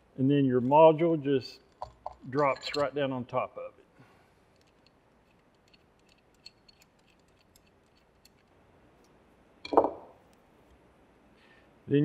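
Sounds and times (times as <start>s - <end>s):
light clicks of small parts: 4.5s - 9.2s.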